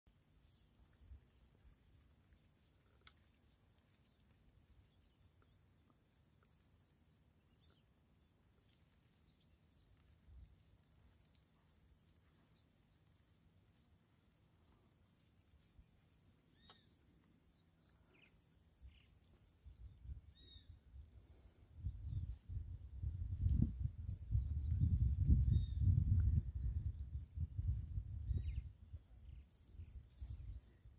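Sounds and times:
insect drone: 0.1s - 30.9s
faint bird chirps: 7.5s - 8.1s, 16.4s - 22.4s, 24.2s - 27.1s, 28.2s - 30.9s.

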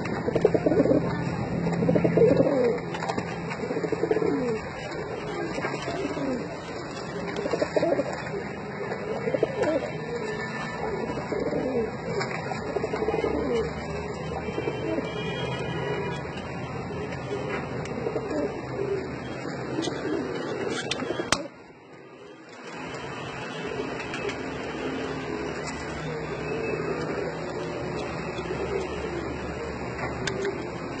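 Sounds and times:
pigeon cooing: 0.0s - 31.0s.

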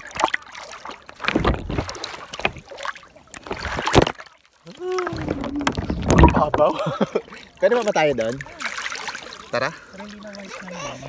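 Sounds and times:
sea water splashing: 0.0s - 11.0s.

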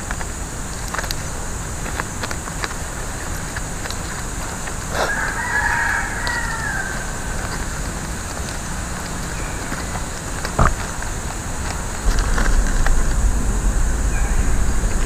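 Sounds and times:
leaf strips clicking: 0.0s - 13.6s
background hiss: 0.0s - 15.0s
rooster crowing: 4.9s - 8.8s, 13.2s - 15.0s.

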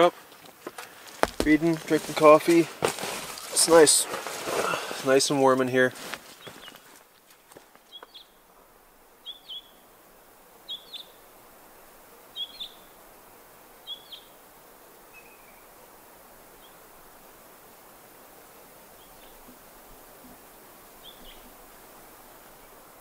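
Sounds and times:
faint steady hiss: 0.0s - 23.0s
small bird calling: 6.3s - 7.0s, 7.8s - 8.4s, 9.2s - 9.8s, 10.7s - 11.2s, 12.3s - 12.9s, 13.8s - 14.4s, 21.0s - 21.6s.

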